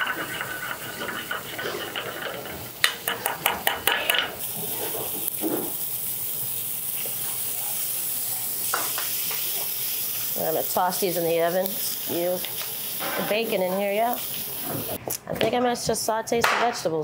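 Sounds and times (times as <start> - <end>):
metal utensil scraping a pan: 0.0 - 3.3
food sizzling in hot oil: 0.0 - 15.0.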